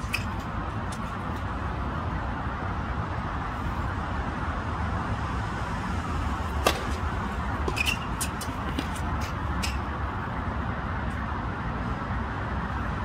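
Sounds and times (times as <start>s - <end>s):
tennis racket hitting ball: 6.5s - 9.8s.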